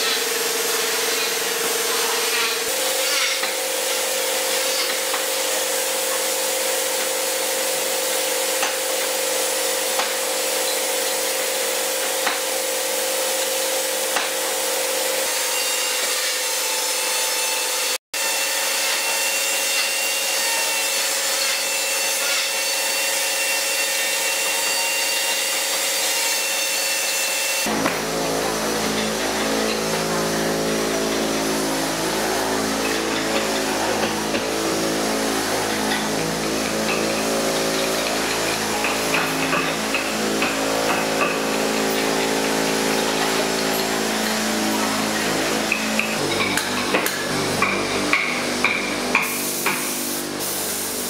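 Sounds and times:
spray gun hissing: 27.7 - 46.2, 48.4 - 51.0
steady hum: 27.7 - 51.0.

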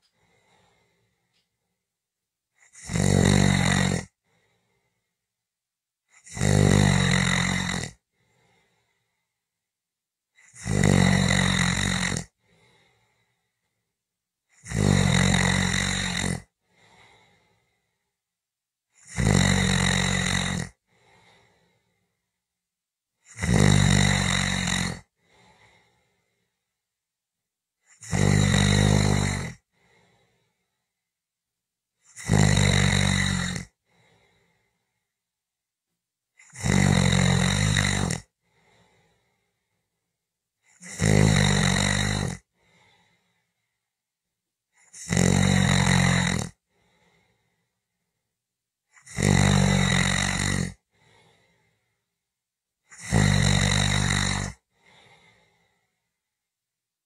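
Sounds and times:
person snoring: 2.6 - 5.1, 6.1 - 9.3, 10.4 - 13.5, 14.5 - 18.1, 18.9 - 22.2, 23.2 - 26.6, 27.8 - 30.7, 32.0 - 35.1, 36.4 - 39.7, 40.7 - 43.5, 44.8 - 47.7, 48.9 - 51.9, 52.8 - 56.1.

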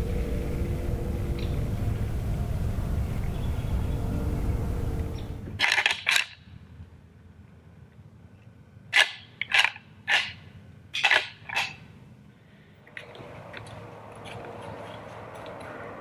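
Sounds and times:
antlers clacking together: 5.6 - 6.4, 8.9 - 11.8.

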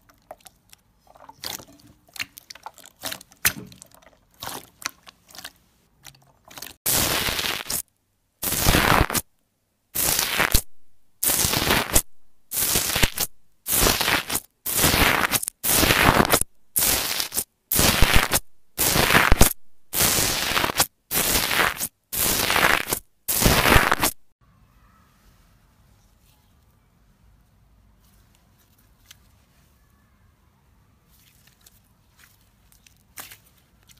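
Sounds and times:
foam slime crackling when pressed: 6.5 - 7.8, 11.2 - 24.2.

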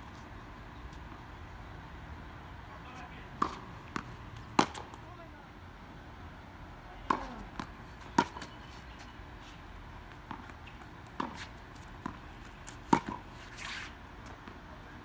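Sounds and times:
tennis ball hitting racket: 3.3 - 5.1, 7.0 - 8.6, 10.1 - 14.6
ball bouncing on hard court: 3.4 - 5.0, 7.0 - 8.5, 10.1 - 13.2.

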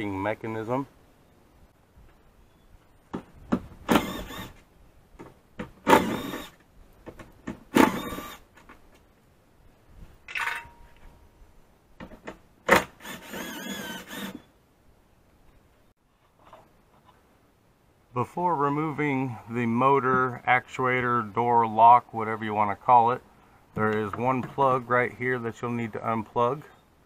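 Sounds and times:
cordless power driver running: 3.9 - 4.6, 5.9 - 6.6, 13.0 - 14.4.

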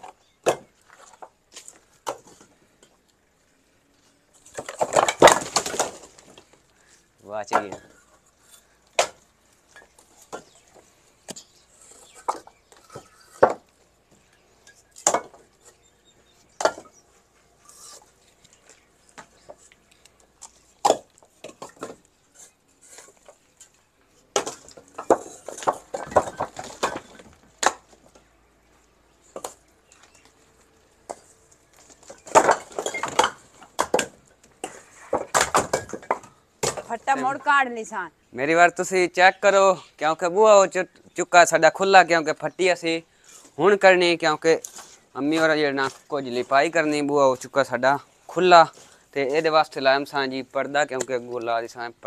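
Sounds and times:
bricks clattering together: 0.0 - 3.0, 4.4 - 6.6, 7.4 - 13.8, 14.6 - 15.8, 16.6 - 17.0, 20.4 - 28.2, 31.0 - 37.4
brick clacking on brick: 11.3 - 13.7, 32.1 - 36.8.

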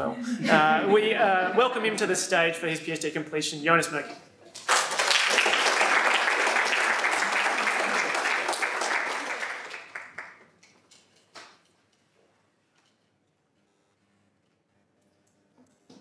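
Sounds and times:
audience applauding: 4.5 - 10.6.

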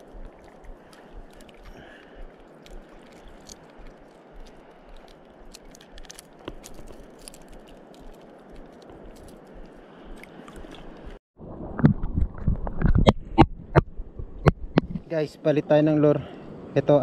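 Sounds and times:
water washing along shore: 0.0 - 11.2.

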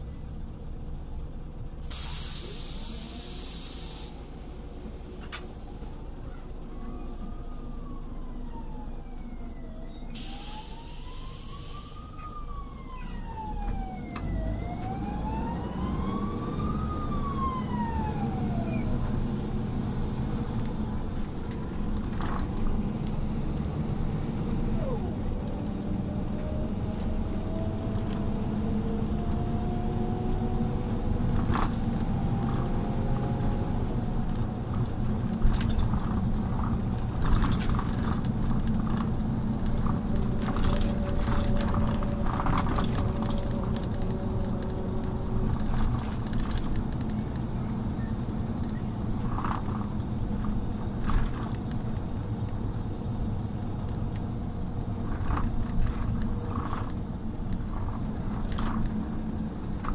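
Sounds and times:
bus engine rumble: 0.0 - 59.9
siren wailing: 6.8 - 19.4.

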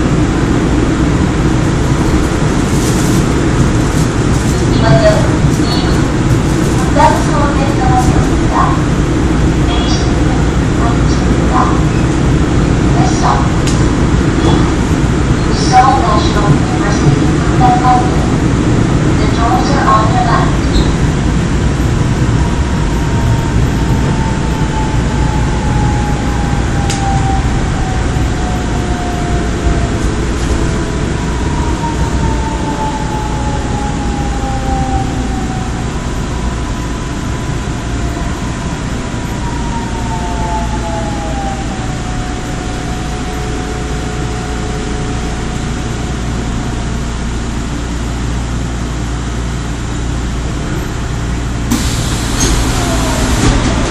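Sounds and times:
wheels rumbling on track: 0.0 - 53.9
train motor whine: 51.7 - 53.9.

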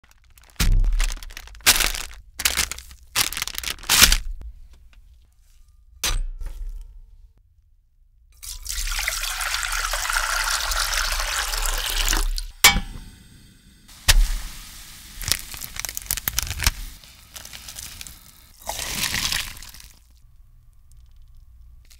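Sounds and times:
plastic packaging crackling: 0.0 - 4.4, 13.9 - 20.2
water pouring into metal pot: 8.4 - 12.5, 18.6 - 20.0.

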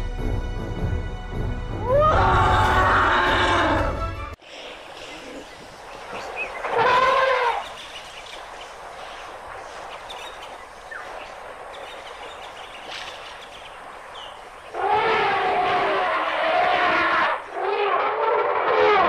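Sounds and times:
elephant trumpeting: 1.9 - 4.0, 6.6 - 7.8, 14.7 - 19.0
steady outdoor hiss: 4.3 - 18.2.

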